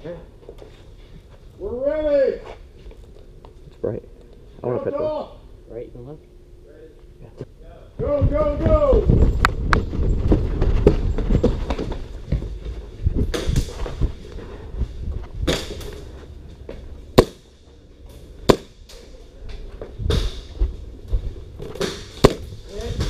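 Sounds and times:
movement thumps: 0:08.0 - 0:17.8
airsoft gun shots: 0:17.2 - 0:17.5.

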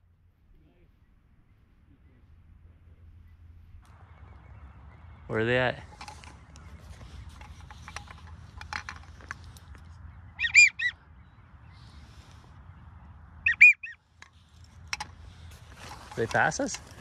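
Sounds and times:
duck whistles: 0:10.4 - 0:11.0, 0:13.4 - 0:14.0.

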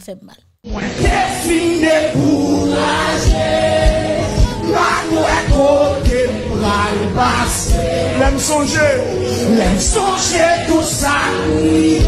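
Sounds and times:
music with singing: 0:00.6 - 0:12.0
steady drum beat: 0:01.0 - 0:08.5.

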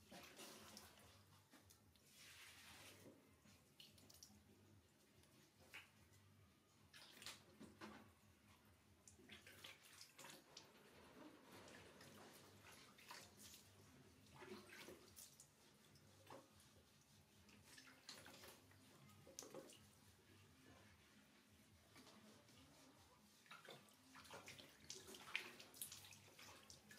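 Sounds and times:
water splashing and trickling: 0:00.0 - 0:04.6, 0:09.0 - 0:20.3, 0:21.8 - 0:26.9.

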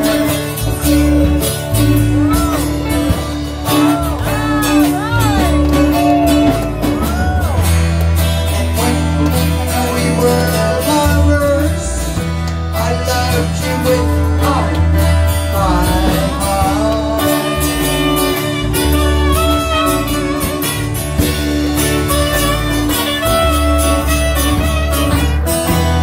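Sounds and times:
bass line: 0:00.0 - 0:26.0
electric and acoustic guitars: 0:00.0 - 0:26.0
woman singing lead: 0:02.1 - 0:07.6.

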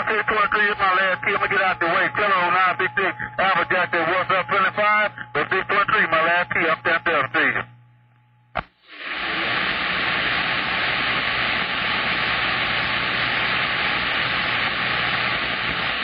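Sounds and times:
radio static hiss: 0:00.0 - 0:07.8, 0:08.5 - 0:16.0
radio click: 0:08.1 - 0:08.8.

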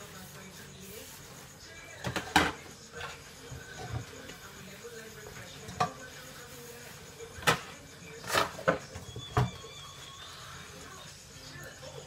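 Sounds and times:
dishes clinking in a sink: 0:02.0 - 0:04.4, 0:05.4 - 0:06.2.

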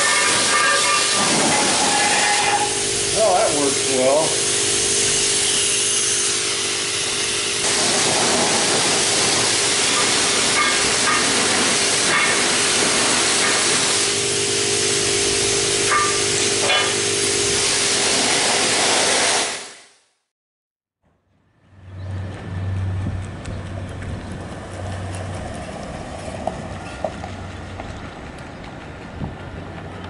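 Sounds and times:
pressure washer spraying water: 0:00.0 - 0:20.0
steady hum: 0:02.5 - 0:08.0, 0:14.0 - 0:17.7.

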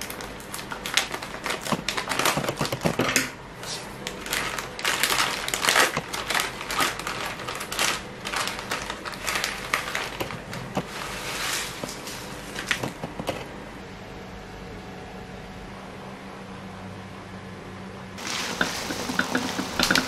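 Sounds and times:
plastic packet crinkling: 0:00.0 - 0:03.2, 0:04.0 - 0:12.9, 0:18.2 - 0:20.0.

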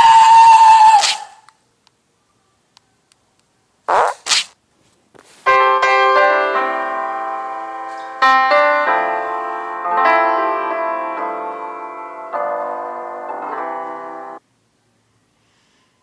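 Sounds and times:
keyboard music with piano chords: 0:05.5 - 0:14.4.

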